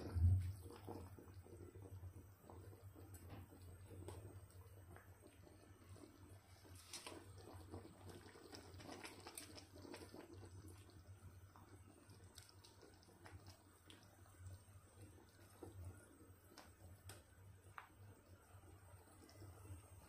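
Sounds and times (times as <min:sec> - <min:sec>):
broth bubbling in a pot: 0:00.0 - 0:20.0
low steady hum: 0:00.0 - 0:20.0.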